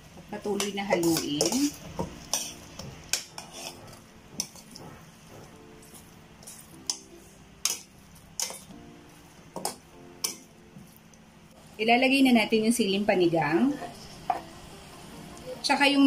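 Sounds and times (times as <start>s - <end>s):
metal spoon clinking against pot: 0.5s - 4.8s, 6.4s - 8.7s.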